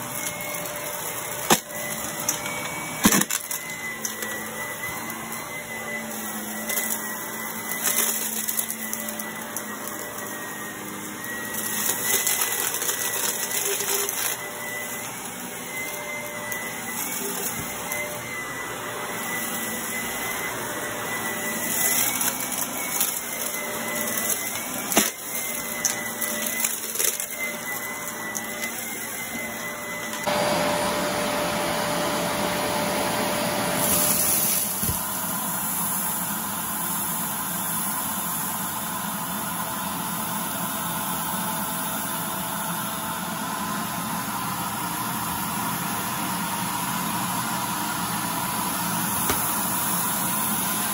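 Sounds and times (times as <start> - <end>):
debris rattling in vacuum: 0.0 - 30.2
vacuum cleaner running: 0.0 - 50.9.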